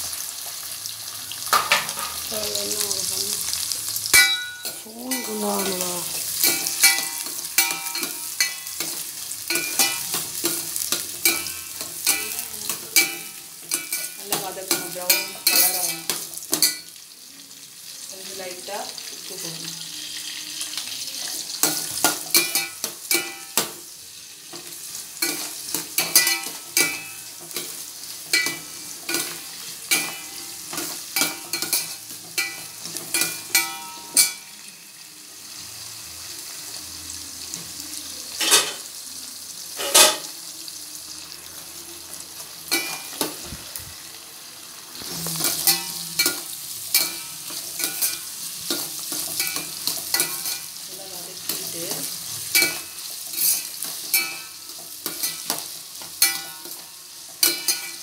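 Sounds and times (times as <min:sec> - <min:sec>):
shallots sizzling in oil: 0:00.0 - 0:58.0
metal spoon clinking against pot: 0:04.1 - 0:05.8, 0:06.4 - 0:16.9, 0:25.2 - 0:34.4, 0:45.4 - 0:50.6, 0:52.5 - 0:56.8, 0:57.4 - 0:58.0.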